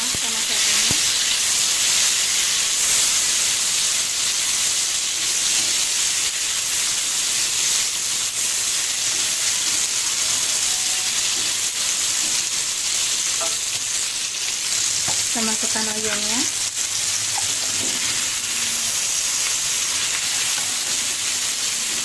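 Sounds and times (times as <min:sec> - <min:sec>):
vegetables sizzling in hot oil: 0:00.0 - 0:22.0.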